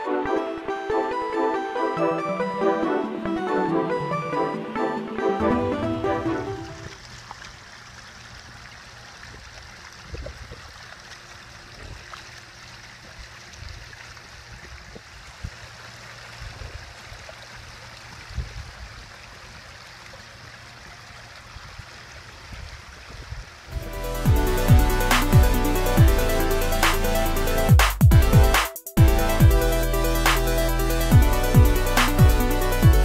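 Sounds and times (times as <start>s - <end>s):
water trickling over rocks: 6.5s - 26.7s
soft low thumps: 27.7s - 29.6s.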